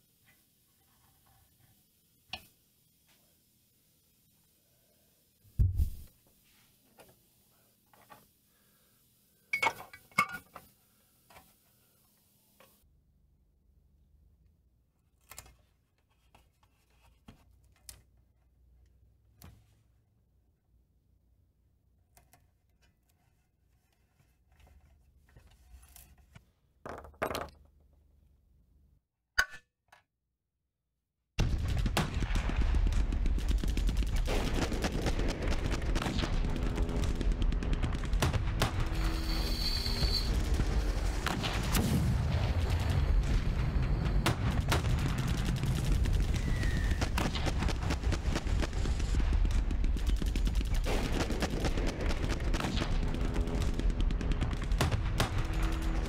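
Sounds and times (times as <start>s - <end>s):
rapid gunfire: 31.4s - 56.0s
plastic toy rockets rattling: 44.6s - 52.5s.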